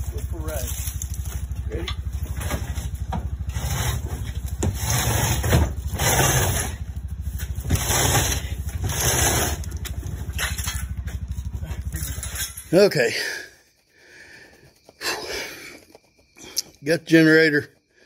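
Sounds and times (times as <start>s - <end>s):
hand truck rolling and scraping: 0.0s - 13.6s
engine idling: 0.0s - 18.0s.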